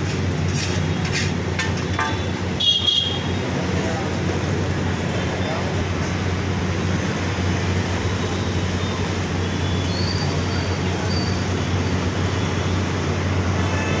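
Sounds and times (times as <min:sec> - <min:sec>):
gas burner rushing and humming: 0:00.0 - 0:13.9.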